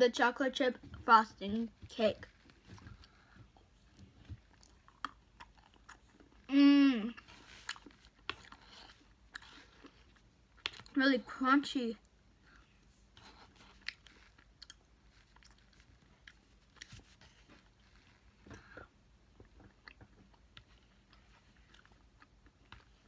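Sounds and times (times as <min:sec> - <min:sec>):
faint chewing with small crunches: 0:00.7 - 0:23.0.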